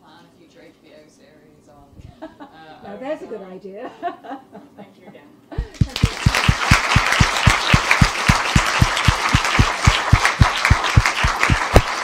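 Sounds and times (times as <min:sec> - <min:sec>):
audience applauding: 0:05.6 - 0:12.0
even rhythmic clapping: 0:05.6 - 0:12.0.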